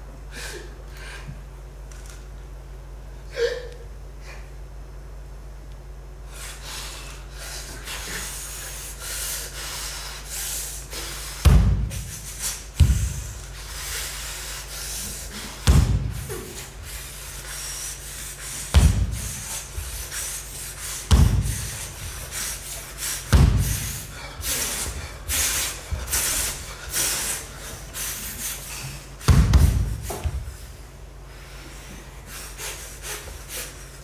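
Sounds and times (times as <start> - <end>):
person breathing hard: 0.3 - 1.5, 6.2 - 34.0
bare feet stamping on wooden floor: 11.4 - 12.2, 12.8 - 13.4, 15.6 - 16.7, 18.7 - 20.0, 21.1 - 22.4, 23.3 - 26.6, 29.3 - 30.7.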